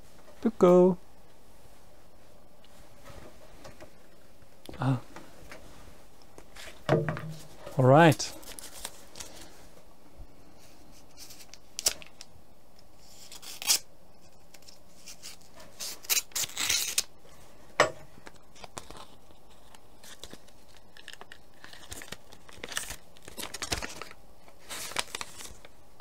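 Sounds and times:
paper rustling and crinkling: 0:06.4 - 0:09.6, 0:10.6 - 0:12.3, 0:18.2 - 0:25.8
envelope being slit and torn: 0:13.1 - 0:13.9, 0:15.1 - 0:17.1.

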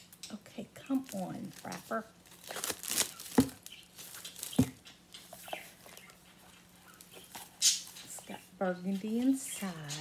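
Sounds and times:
plastic wrapper crinkling and tearing: 0:00.8 - 0:04.8.

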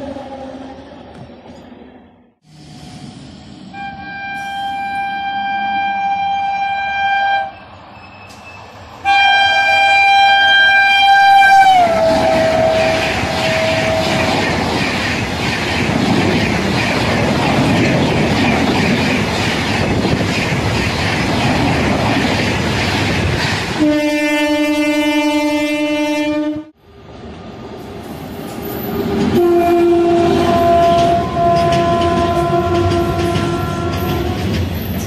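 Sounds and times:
locomotive horn blasts: 0:03.7 - 0:07.6, 0:09.0 - 0:14.2, 0:23.8 - 0:26.7, 0:29.4 - 0:34.4
train wheel clatter on rails: 0:12.0 - 0:23.8, 0:28.5 - 0:35.0.

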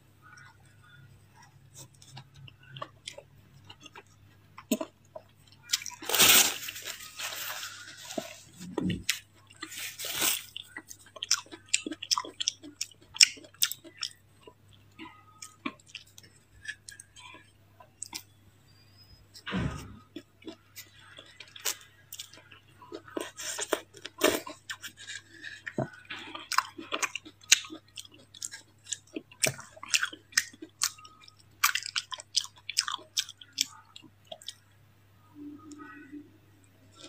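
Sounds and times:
chewing and crunching ice: 0:00.2 - 0:18.4, 0:20.0 - 0:34.7
paper tissue rustling: 0:06.0 - 0:08.6, 0:09.7 - 0:10.5.

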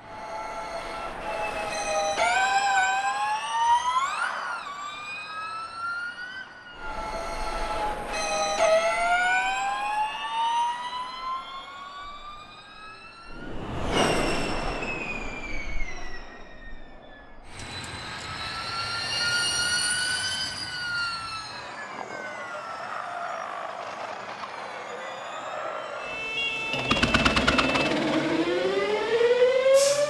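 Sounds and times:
electric race car whining: 0:16.9 - 0:29.8.

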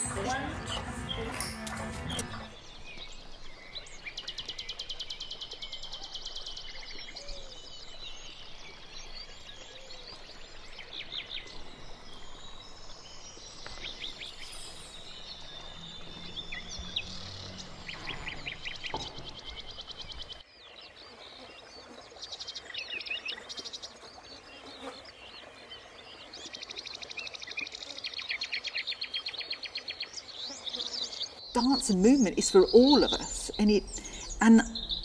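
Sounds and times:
birds chirping and calling: 0:00.0 - 0:20.4, 0:30.8 - 0:35.0.

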